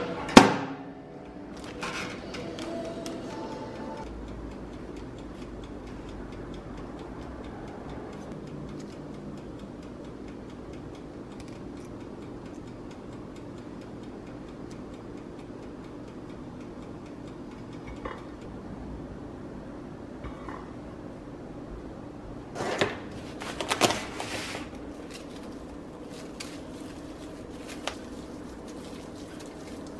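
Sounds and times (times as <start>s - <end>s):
low steady hum: 0.0s - 29.9s
steady ticking: 2.4s - 18.6s.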